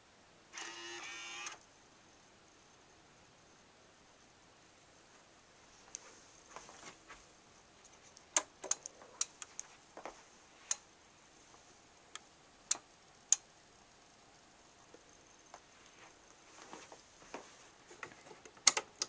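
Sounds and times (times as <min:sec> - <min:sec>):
faint hiss: 0:00.0 - 0:19.0
mic handling clicks and taps: 0:07.8 - 0:10.9, 0:17.9 - 0:19.0.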